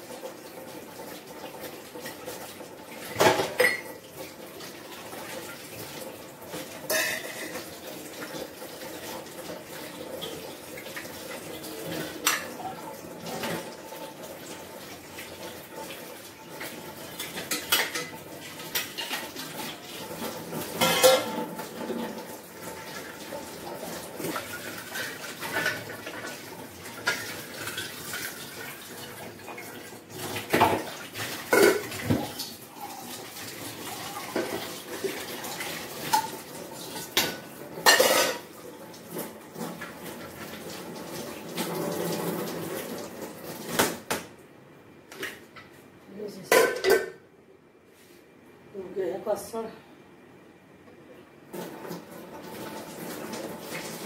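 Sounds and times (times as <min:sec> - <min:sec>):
tap water running: 0:00.0 - 0:44.4, 0:51.5 - 0:54.0
metal dishes clinking and clattering: 0:03.1 - 0:04.0, 0:06.8 - 0:07.8, 0:17.1 - 0:19.4, 0:20.2 - 0:22.2, 0:31.5 - 0:32.4, 0:36.0 - 0:38.5, 0:46.5 - 0:47.2.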